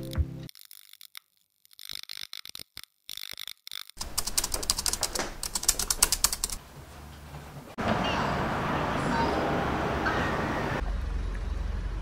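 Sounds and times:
typewriter key clicks: 4.0 - 6.6.

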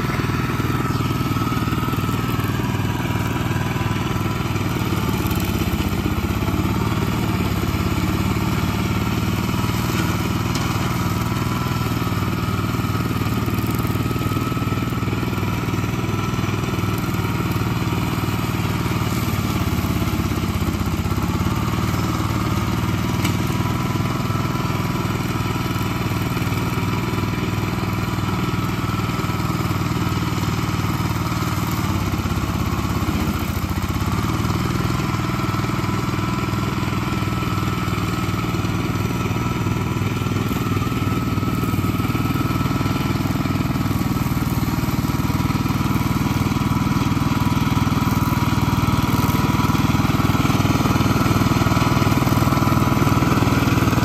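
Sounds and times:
rotary blades cutting brush: 0.0 - 23.7, 37.3 - 54.0
walk-behind tractor engine running: 0.0 - 54.0.

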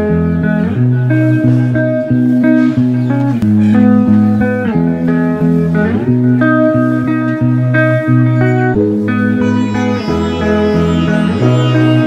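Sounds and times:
plucked guitar melody: 0.0 - 12.0
sustained bass notes: 8.3 - 12.0.

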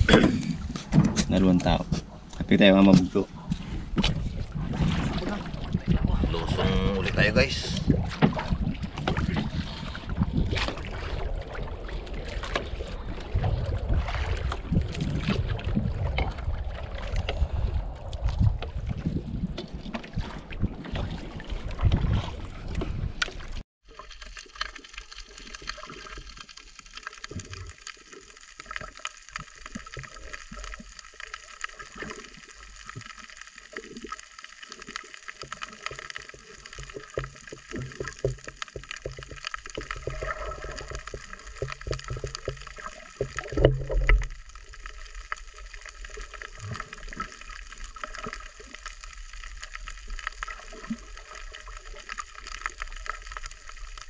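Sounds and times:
muffled underwater gurgling: 0.0 - 19.4
gurgling water rush: 0.0 - 23.6
wind on microphone: 3.3 - 23.6
faint crackling clicks: 24.0 - 54.0.

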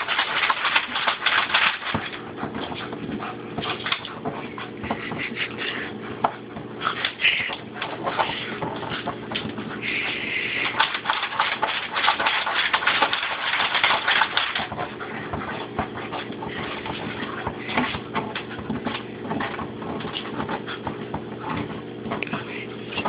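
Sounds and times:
dog claws scratching metal door: 0.0 - 4.2, 10.6 - 22.4
low hum: 0.0 - 23.0.

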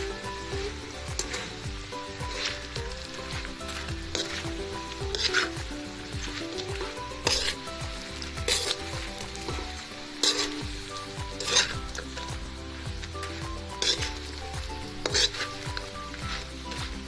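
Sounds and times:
food sizzling in pan: 0.0 - 17.0
metal spatula scraping pan: 0.1 - 12.4, 13.1 - 17.0.

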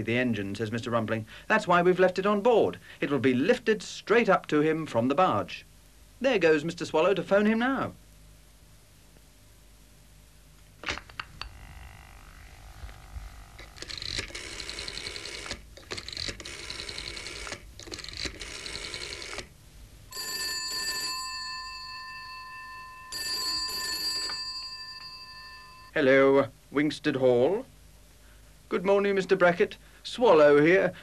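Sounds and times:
rotary dial ticking: 13.6 - 19.5
telephone bell ringing: 14.3 - 15.5, 18.4 - 19.4, 20.1 - 26.0.

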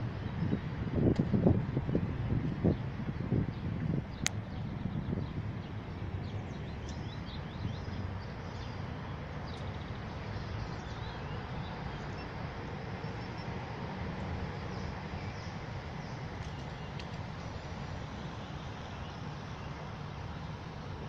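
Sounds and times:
birds chirping: 2.7 - 13.8.

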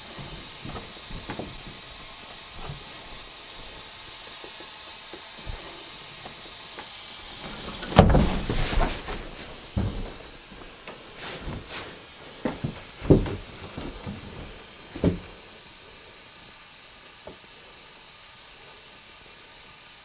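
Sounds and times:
faint steady hiss: 0.0 - 20.0
small knocks: 12.4 - 15.3.

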